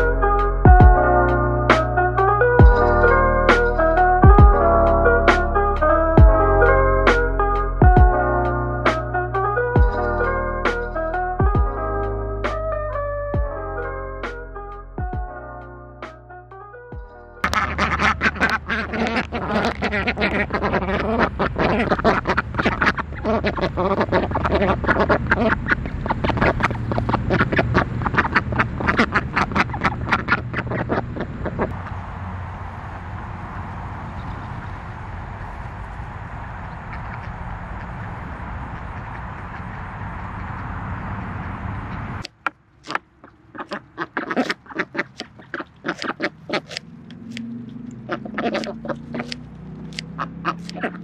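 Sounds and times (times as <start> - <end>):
duck quack: 17.4 - 31.7, 36.8 - 40.7, 42.8 - 46.8, 48.1 - 51.0
duck bill clicks and snips: 42.2 - 51.0.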